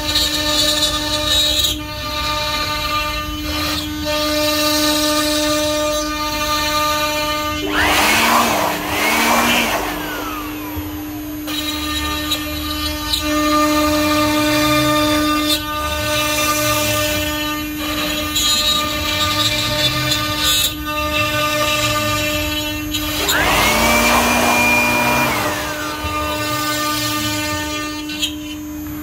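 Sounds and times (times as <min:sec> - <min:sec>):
power tool motor whine: 0:07.1 - 0:15.3, 0:20.3 - 0:29.0.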